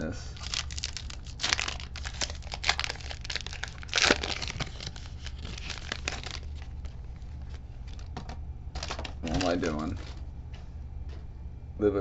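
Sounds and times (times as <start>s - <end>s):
foil wrapper crinkling and tearing: 0.3s - 8.2s, 8.8s - 10.2s.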